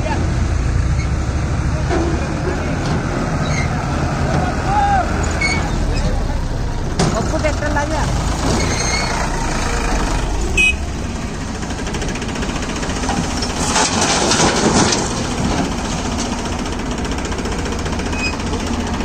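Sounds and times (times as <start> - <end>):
diesel engines running: 0.0 - 19.0
soil dropping into steel trolley: 12.7 - 17.0.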